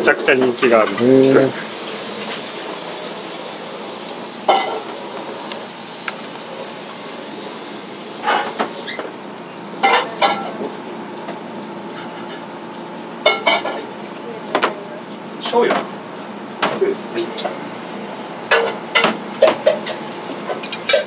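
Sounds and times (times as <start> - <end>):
rice sizzling in a pan: 0.5 - 14.3, 18.3 - 21.0.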